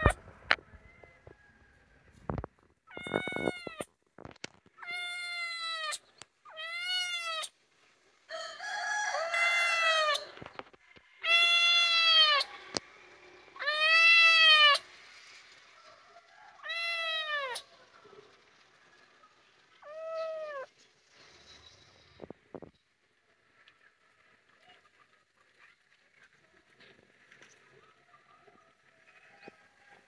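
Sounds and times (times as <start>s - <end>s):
kitten meowing: 2.9s - 3.9s, 4.8s - 7.5s, 9.4s - 10.2s, 11.2s - 12.5s, 13.6s - 14.8s, 16.6s - 17.6s, 19.8s - 20.7s.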